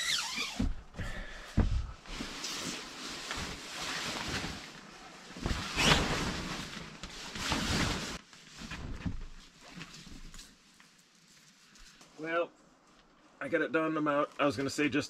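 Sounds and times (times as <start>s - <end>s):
canvas cover rustling: 1.6s - 12.0s.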